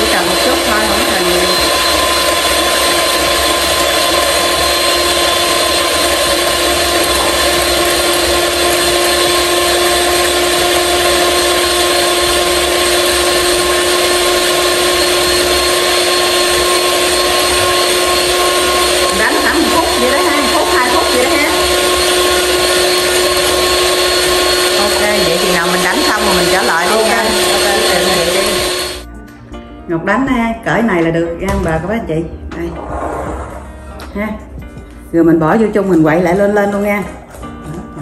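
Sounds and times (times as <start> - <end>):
electric mixer beating eggs: 0.0 - 29.1.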